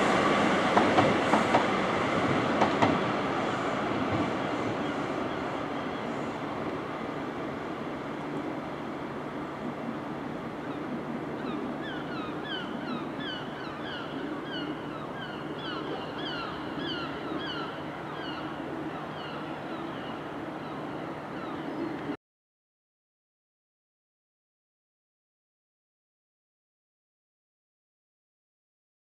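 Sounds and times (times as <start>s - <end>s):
train rumbling: 0.0s - 21.5s.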